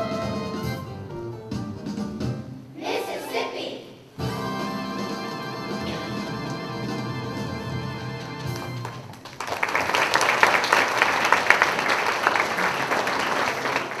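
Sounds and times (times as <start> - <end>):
held music chord: 4.2 - 8.8
audience applause: 8.4 - 14.0.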